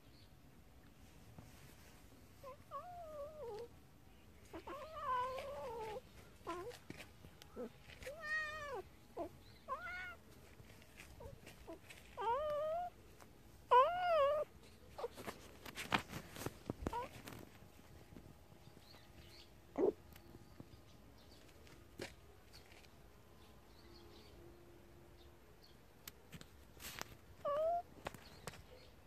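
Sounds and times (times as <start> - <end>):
soft clicks and rustles: 4.4 - 8.4, 14.6 - 19.4, 26.0 - 28.9
cat meowing: 4.5 - 6.8, 7.6 - 10.2, 27.4 - 27.9.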